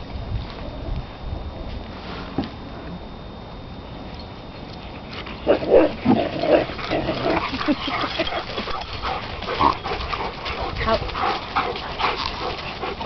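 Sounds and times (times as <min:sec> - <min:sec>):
puppies yipping: 0:06.6 - 0:13.0.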